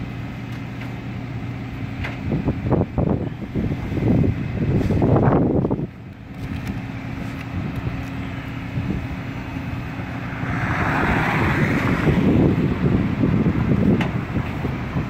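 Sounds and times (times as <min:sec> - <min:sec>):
constant hum: 0:00.0 - 0:15.0
truck engine drone: 0:00.0 - 0:15.0.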